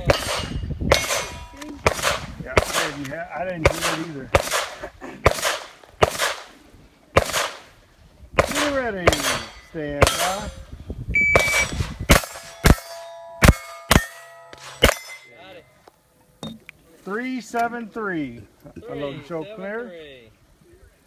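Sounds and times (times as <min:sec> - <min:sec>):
steel plate ringing clang: 0:00.0 - 0:01.6, 0:09.1 - 0:10.6, 0:11.4 - 0:15.8
gunshots: 0:00.0 - 0:06.6, 0:07.2 - 0:07.7, 0:08.4 - 0:10.6, 0:11.4 - 0:15.3
shot timer beep: 0:11.2 - 0:11.7.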